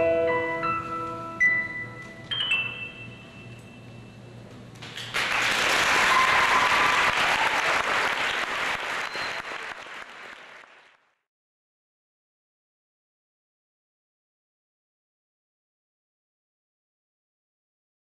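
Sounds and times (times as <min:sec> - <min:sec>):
audience applauding: 0:04.8 - 0:11.2.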